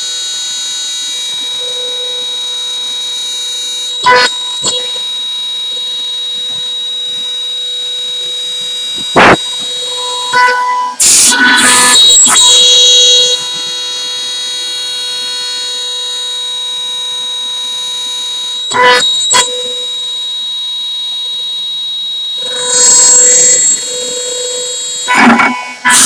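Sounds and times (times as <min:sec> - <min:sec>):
router bit cutting wood: 0:00.0 - 0:26.0
router spindle whining: 0:00.0 - 0:26.0.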